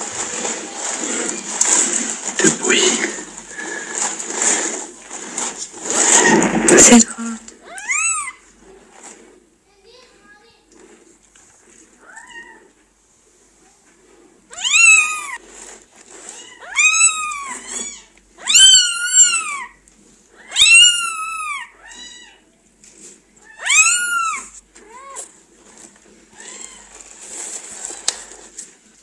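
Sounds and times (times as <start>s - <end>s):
kittens mewing: 5.8s - 8.4s, 14.5s - 15.4s, 20.4s - 22.4s, 23.5s - 25.3s.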